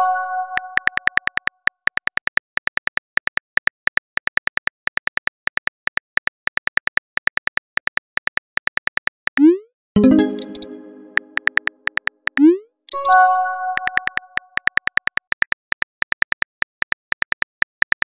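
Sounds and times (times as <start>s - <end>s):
phone keyboard typing clicks: 0.5s - 3.7s, 10.0s - 18.0s
message sent chime: 10.0s - 11.6s, 12.9s - 14.4s.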